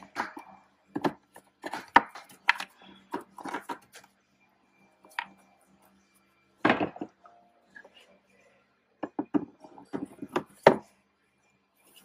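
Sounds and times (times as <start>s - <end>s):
plastic parts being handled: 0.0s - 4.2s.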